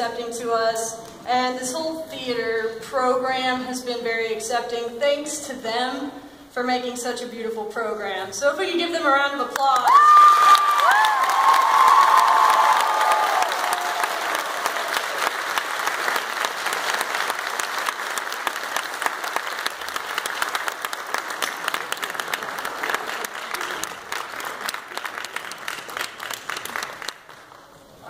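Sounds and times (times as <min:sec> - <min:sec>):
audience applauding: 0:09.8 - 0:27.9.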